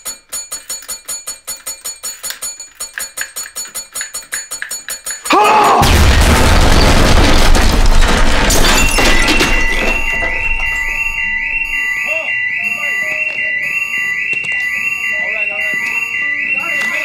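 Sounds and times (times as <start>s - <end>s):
small bell dinging rapidly: 0.0s - 5.4s
fire alarm beeping: 5.1s - 17.0s
man yelling: 5.3s - 6.0s
crashing debris: 5.3s - 11.9s
bomb explosion with rumble: 5.8s - 11.8s.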